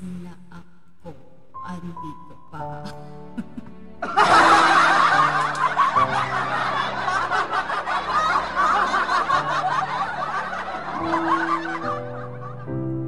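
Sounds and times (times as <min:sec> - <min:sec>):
loud laughter: 0:03.4 - 0:12.8.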